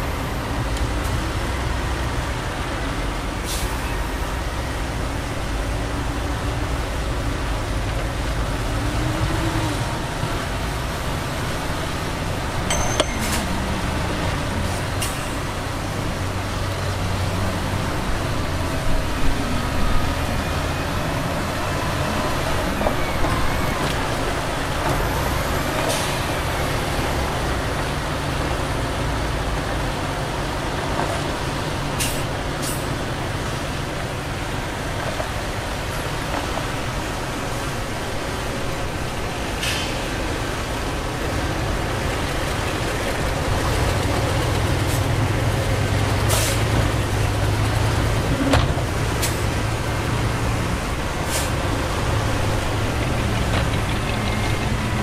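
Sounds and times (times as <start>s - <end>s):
diesel engine drone: 0.0s - 55.0s
machinery knocks and clanks: 52.6s - 55.0s.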